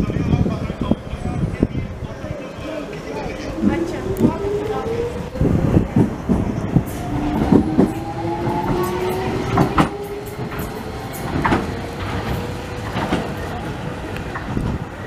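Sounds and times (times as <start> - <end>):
train wheels clicking: 3.6 - 15.0.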